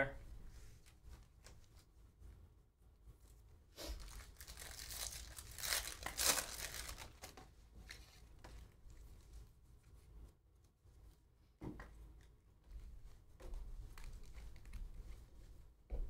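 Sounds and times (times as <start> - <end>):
soft rustling of cards: 0.4 - 16.0
foil wrapper tearing and crinkling: 3.9 - 8.1.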